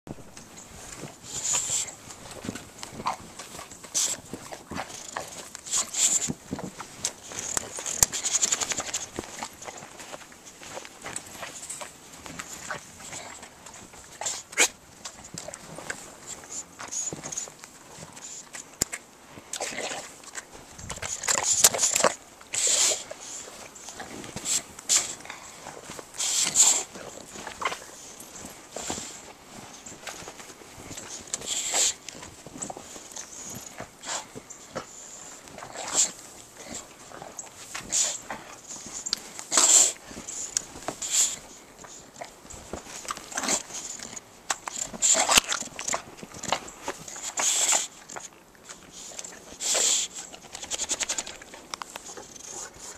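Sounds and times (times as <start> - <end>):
dog crunching through deep snow: 0.4 - 18.5, 19.4 - 52.9.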